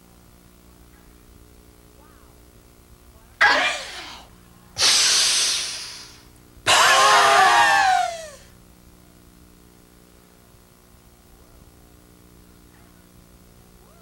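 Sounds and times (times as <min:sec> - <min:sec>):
woman breathing forcefully: 0:04.8 - 0:06.2.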